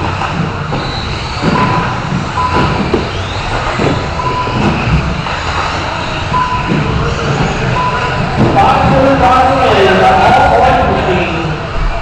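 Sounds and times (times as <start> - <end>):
rc cars racing: 0.0 - 12.0
short steady beeps: 1.5 - 3.3, 4.2 - 4.9, 6.3 - 6.9, 7.7 - 8.3.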